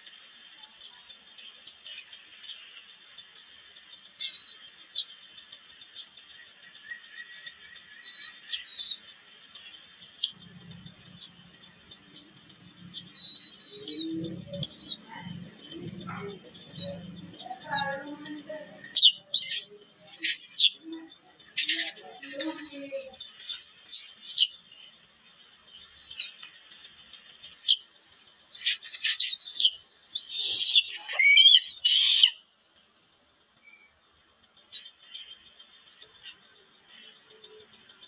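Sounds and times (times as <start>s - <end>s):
eaglets chirping: 10.1s - 20.8s, 28.6s - 32.4s.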